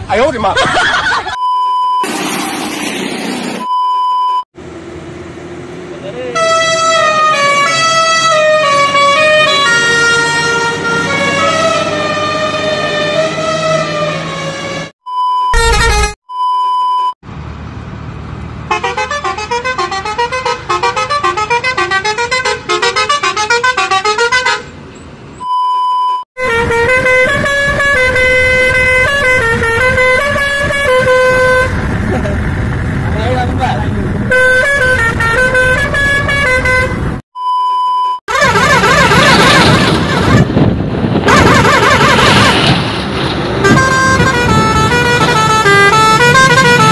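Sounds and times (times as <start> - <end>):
truck musical horn playing a tune: 6.3 - 14.9, 15.5 - 16.8, 18.7 - 24.8, 26.4 - 31.8, 34.3 - 37.2, 38.3 - 42.8, 43.6 - 46.9
short pitched horn notes: 15.5 - 16.2
multi-tone horn long notes: 15.6 - 16.2, 26.4 - 31.8, 34.3 - 37.0, 38.3 - 40.5, 43.6 - 46.9.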